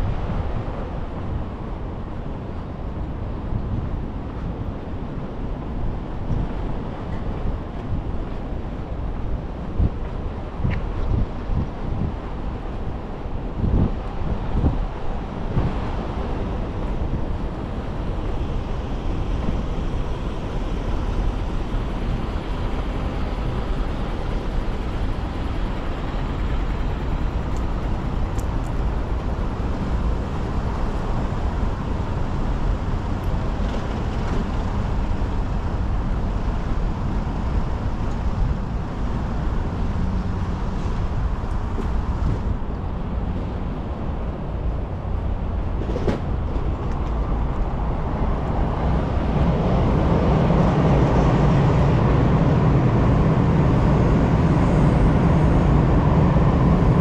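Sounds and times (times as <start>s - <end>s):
road traffic rumble: 0.0s - 57.0s.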